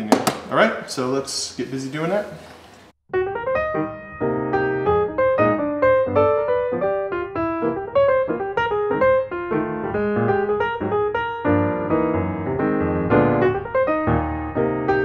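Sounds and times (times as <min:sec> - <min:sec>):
piano music: 0:03.1 - 0:15.0.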